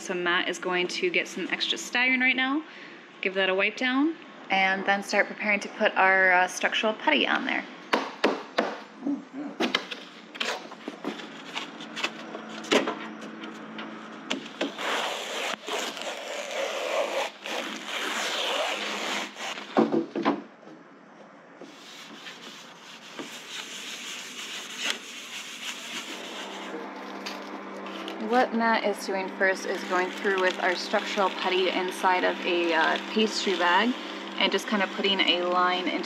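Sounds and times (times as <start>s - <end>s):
rag rubbing on panel: 21.6s - 26.8s.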